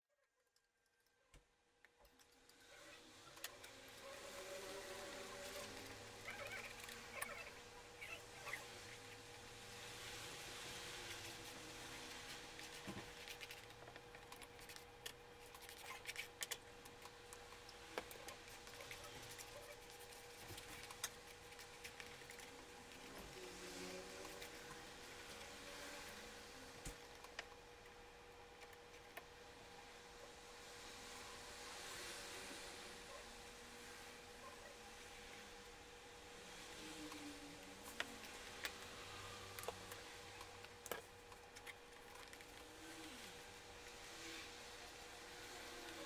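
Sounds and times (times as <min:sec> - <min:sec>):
faint steady hum: 0:00.1 - 0:46.0
palette knife scraping paint: 0:18.0 - 0:26.0.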